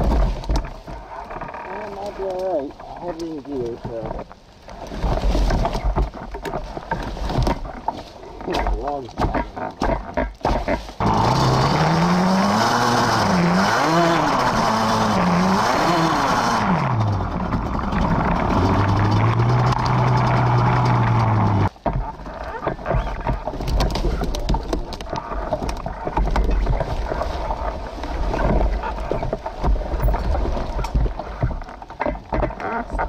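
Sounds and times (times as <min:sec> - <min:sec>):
atv engine revving: 0:10.6 - 0:21.7.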